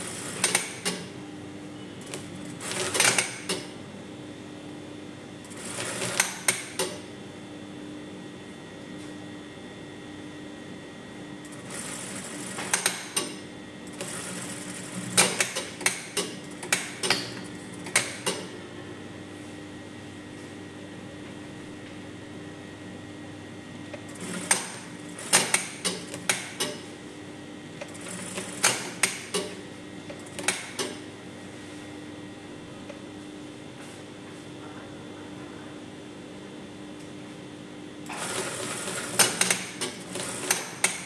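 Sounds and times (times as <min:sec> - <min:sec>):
sewing machine motor hum: 0:00.0 - 0:01.1, 0:02.0 - 0:03.7, 0:05.4 - 0:07.0, 0:11.4 - 0:18.6, 0:23.9 - 0:26.9, 0:27.8 - 0:31.0, 0:38.0 - 0:41.0.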